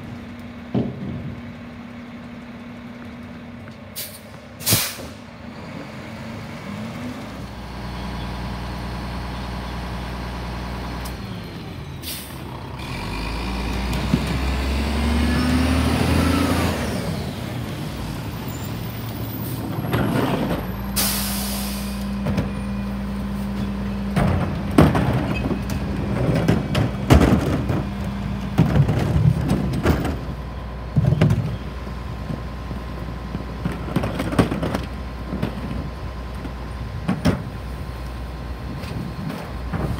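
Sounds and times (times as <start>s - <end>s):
diesel engine running: 0.0s - 39.9s
air hiss burst: 4.0s - 5.2s, 21.0s - 22.0s
trash carts banging: 13.4s - 21.1s, 21.7s - 37.9s.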